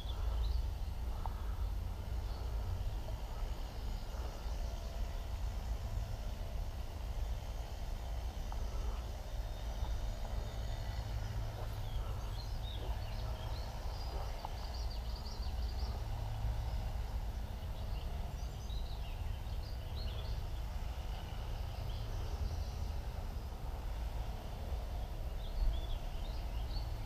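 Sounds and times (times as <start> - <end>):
low outdoor rumble: 0.0 - 27.0
small birds chirping: 0.0 - 27.0.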